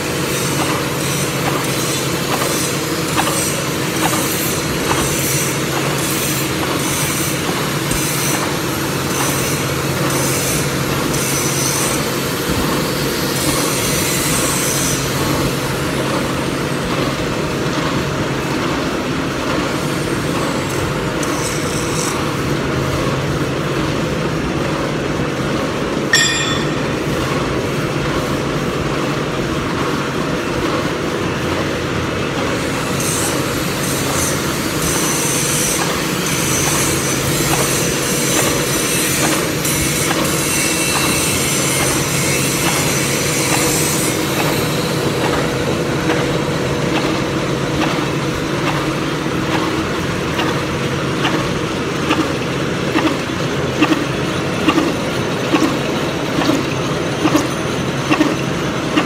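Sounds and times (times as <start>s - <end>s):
milling machine hum: 31.8s - 59.0s.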